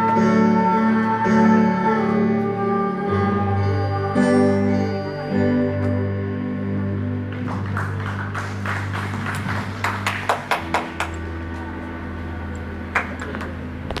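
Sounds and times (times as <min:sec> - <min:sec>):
handclaps: 0:07.3 - 0:11.3, 0:12.9 - 0:13.6.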